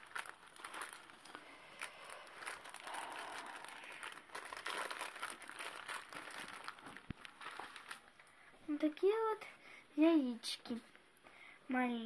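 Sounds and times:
paper napkins rustling: 0.0s - 8.2s.

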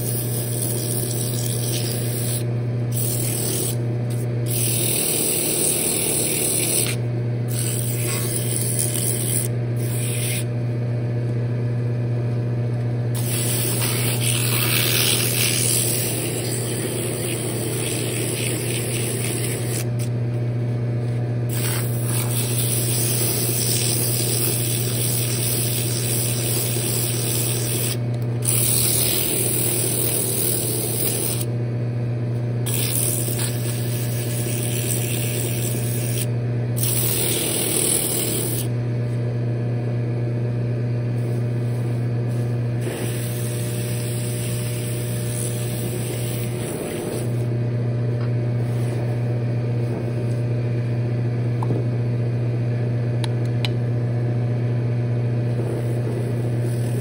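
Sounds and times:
wood lathe humming: 0.0s - 10.5s, 13.2s - 20.1s, 21.5s - 31.5s, 32.7s - 38.7s, 42.8s - 47.6s, 55.5s - 57.0s
sandpaper rubbing on wood: 3.0s - 3.8s, 7.6s - 10.5s, 13.2s - 19.9s.

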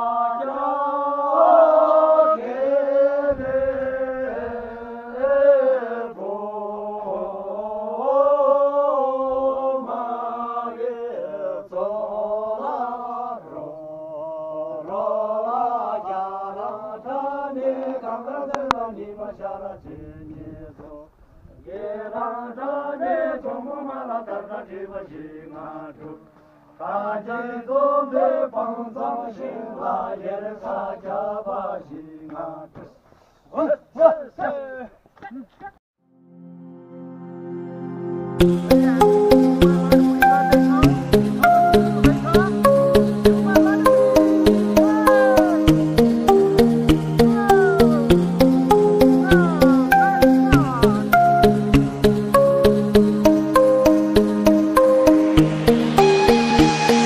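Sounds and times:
slow vocal chanting: 0.0s - 33.0s
steady drone: 52.1s - 57.0s.

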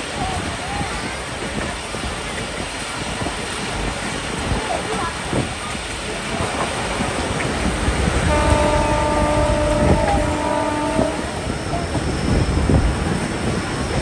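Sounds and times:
train rumbling: 0.0s - 14.0s
locomotive air horn: 8.2s - 11.4s.

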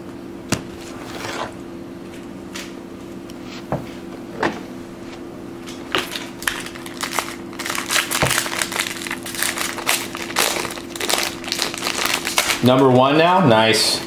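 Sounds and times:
foil wrapper crinkling: 5.8s - 13.0s.

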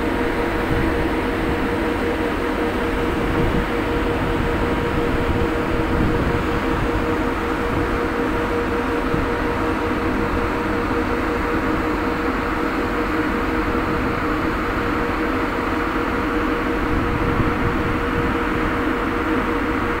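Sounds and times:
constant whine: 0.0s - 20.0s
ship deck machinery drone: 0.0s - 20.0s
wind rumble on microphone: 0.2s - 1.7s, 2.8s - 12.0s, 16.5s - 20.0s.

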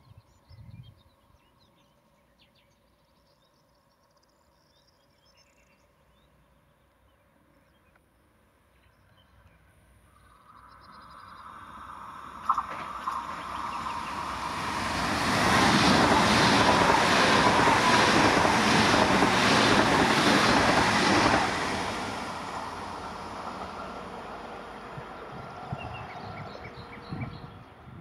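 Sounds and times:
high-speed train passing: 8.4s - 28.0s.

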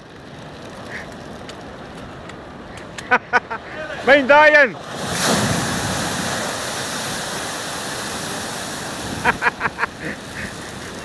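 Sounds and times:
water washing across quay: 3.6s - 11.0s
wave crashing over wall: 3.9s - 11.0s.

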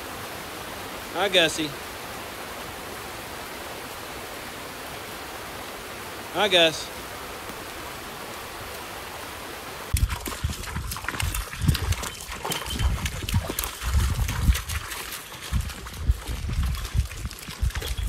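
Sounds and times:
creek rushing: 0.0s - 18.0s
goats splashing through stream: 0.0s - 18.0s
hooves clicking on stones: 9.9s - 18.0s.

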